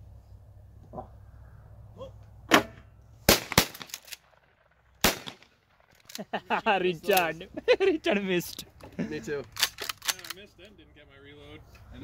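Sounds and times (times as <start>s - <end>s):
shotgun shots: 3.3s - 5.9s.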